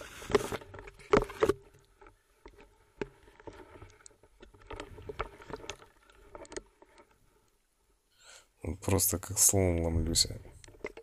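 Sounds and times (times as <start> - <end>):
underwater clicks and knocks: 0.2 - 7.2, 10.4 - 11.0.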